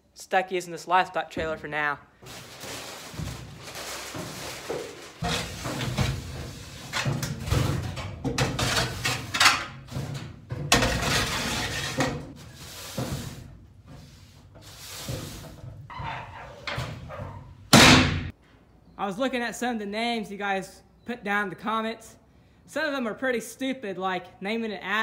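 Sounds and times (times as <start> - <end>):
shovel scraping metal floor: 2.3 - 17.6.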